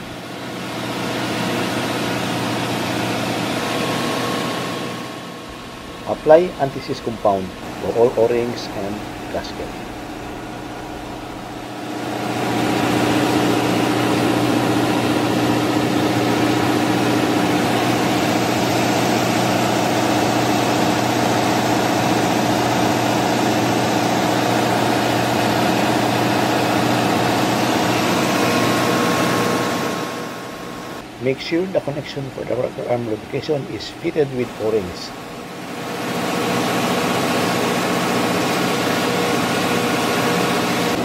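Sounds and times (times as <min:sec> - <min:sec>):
engine room machinery droning: 0:00.0 - 0:41.0.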